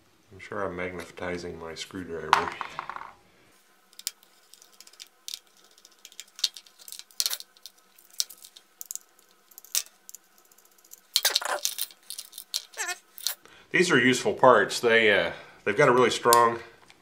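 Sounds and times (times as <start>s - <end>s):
screwdriver and metal parts clicking: 3.9s - 13.4s.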